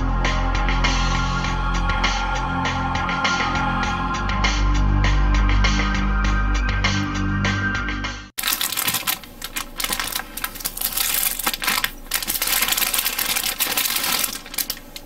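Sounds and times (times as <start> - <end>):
plastic sprues clicking and clattering: 8.4 - 15.0.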